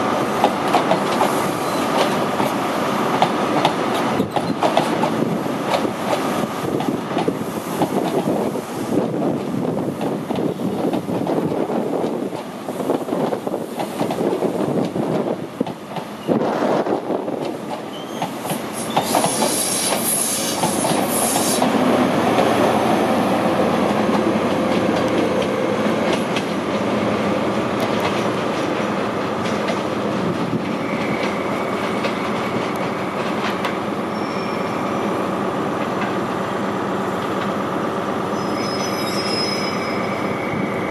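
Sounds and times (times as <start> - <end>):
train wheels clacking over rail joints: 0.4 - 8.4, 13.2 - 16.2, 17.4 - 22.5, 23.8 - 27.0, 27.7 - 33.8
wheel squeal: 17.9 - 21.6, 34.1 - 35.1, 38.3 - 40.9.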